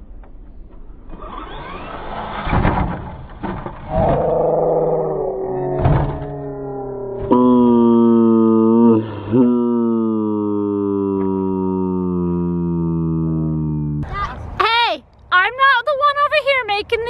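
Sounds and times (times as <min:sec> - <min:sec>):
electric toy car motor whining: 0:01.2 - 0:02.2.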